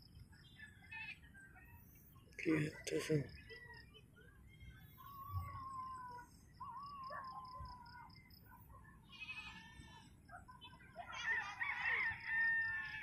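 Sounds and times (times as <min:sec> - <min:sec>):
wavering animal calls: 0:04.7 - 0:08.4, 0:09.0 - 0:11.9.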